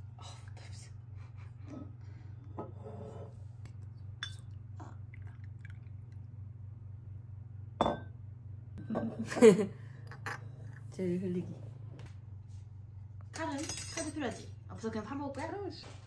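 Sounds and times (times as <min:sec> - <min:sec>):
steady low hum: 0:00.0 - 0:16.0
glass clinking: 0:04.2 - 0:04.5, 0:07.8 - 0:08.2
liquid pouring: 0:04.2 - 0:06.4.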